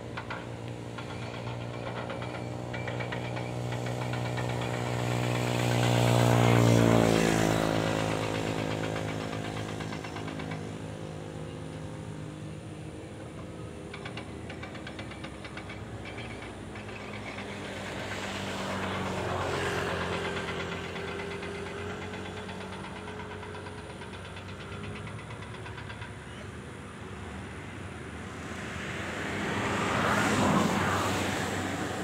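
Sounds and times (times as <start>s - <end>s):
vehicle engines running: 0.0s - 32.0s
vehicle passing: 28.5s - 32.0s.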